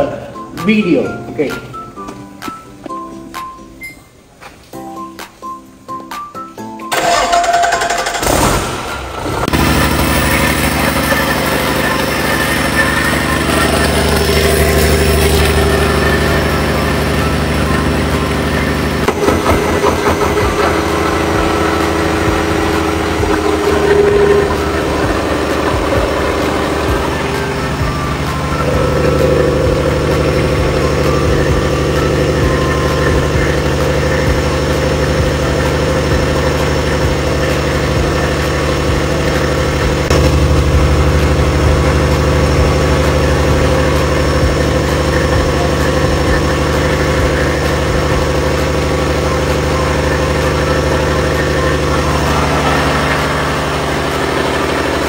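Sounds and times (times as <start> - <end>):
diesel engine running: 6.9 - 55.0.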